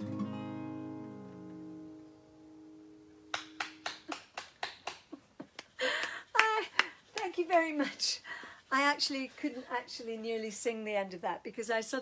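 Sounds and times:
acoustic guitar chord ringing: 0.0s - 3.6s
hand clapping: 3.3s - 7.7s.

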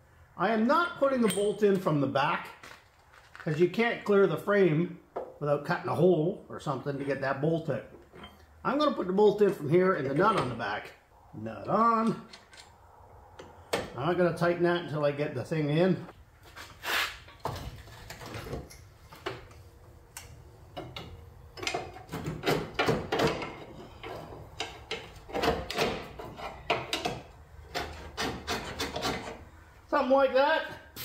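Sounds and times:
steel parts scraping and knocking: 8.0s - 8.5s, 20.8s - 29.5s.

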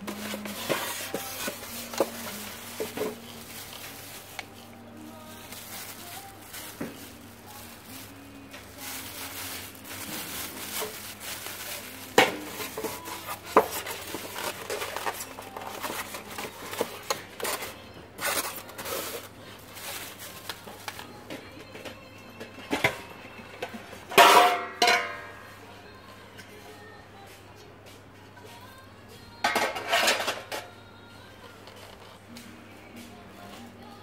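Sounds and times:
plastic wrapping crinkling: 0.0s - 21.5s.

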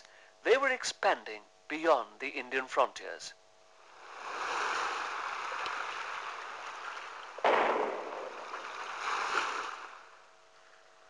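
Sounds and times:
loud crash: 7.4s - 8.9s.

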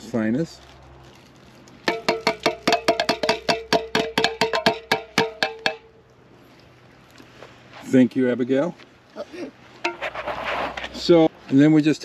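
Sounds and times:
metal can ringing taps: 1.9s - 5.9s.

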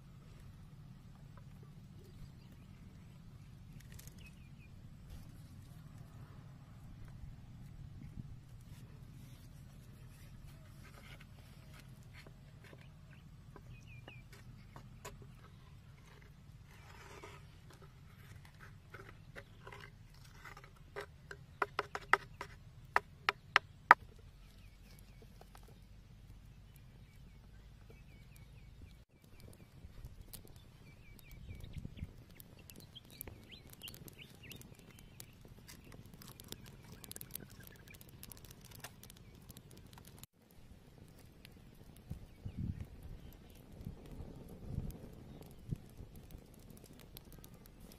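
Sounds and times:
wood fire crackling and popping: 1.2s - 6.1s, 19.6s - 47.9s
bamboo stick scraping and tapping: 8.5s - 25.9s, 31.6s - 40.3s.

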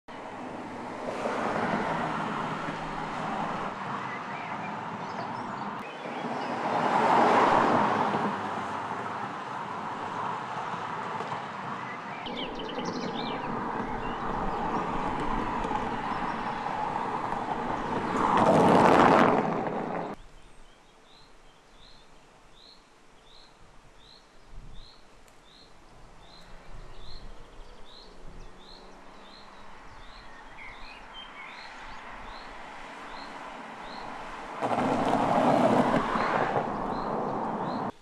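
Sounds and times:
car driving through tunnel: 6.1s - 20.2s, 27.8s - 37.9s
bird chirping: 11.8s - 14.9s, 20.1s - 34.1s.

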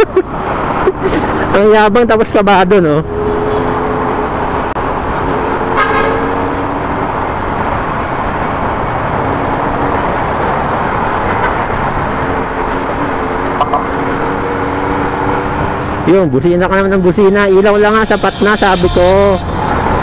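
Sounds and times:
wind and road noise: 0.0s - 20.0s
vehicle horn toot: 5.6s - 6.5s, 18.1s - 20.0s.

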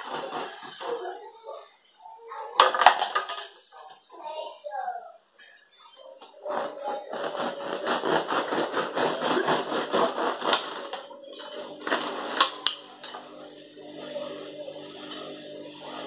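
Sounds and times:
bread knife sawing through loaf: 0.0s - 1.1s, 6.4s - 11.1s.

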